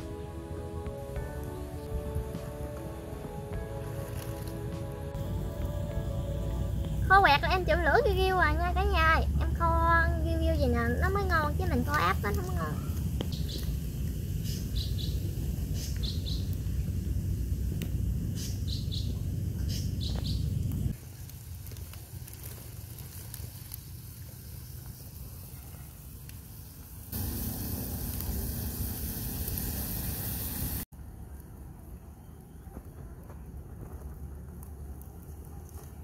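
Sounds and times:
low rumble: 0.0 - 15.8
birds chirping: 11.8 - 13.8, 14.4 - 16.9, 18.3 - 20.7.

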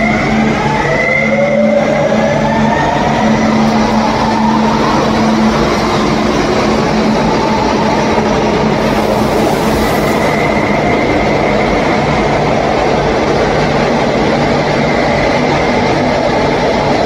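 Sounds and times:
train traction motor whine: 0.0 - 17.0
wheel and rail rushing noise: 0.0 - 17.0.

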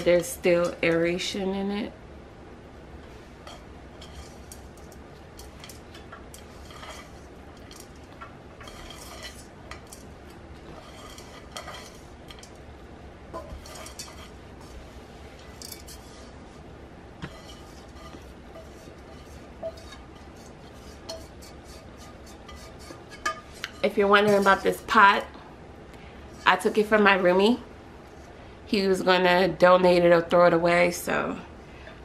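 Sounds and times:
soil scraping a metal pot: 3.4 - 12.6, 13.3 - 16.5, 17.2 - 25.3.

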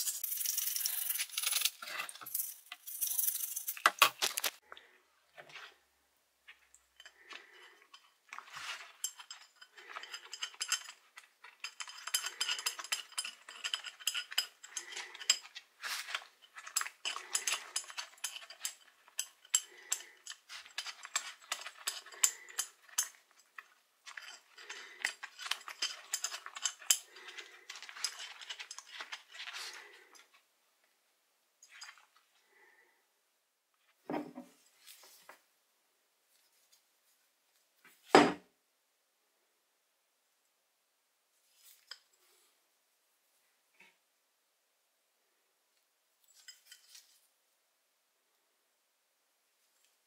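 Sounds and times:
metal clinking and scraping: 0.0 - 4.6, 6.5 - 30.4, 31.6 - 32.8, 46.2 - 47.3.

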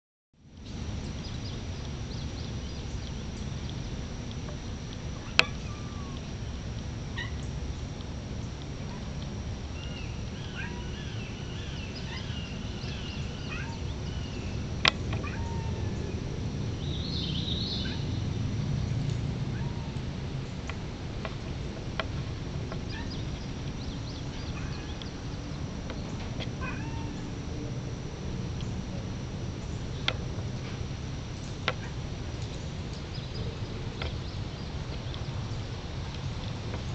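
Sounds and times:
low steady rumble: 0.4 - 36.9
high-pitched animal calls: 5.2 - 6.3, 7.1 - 7.5, 9.8 - 14.6, 15.2 - 16.2, 22.9 - 23.3, 26.6 - 27.4.

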